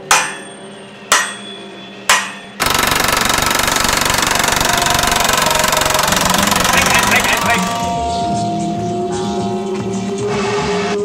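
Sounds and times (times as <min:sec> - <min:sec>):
sharp ringing knocks: 0:00.0 - 0:02.6
impact wrench hammering: 0:00.0 - 0:08.0.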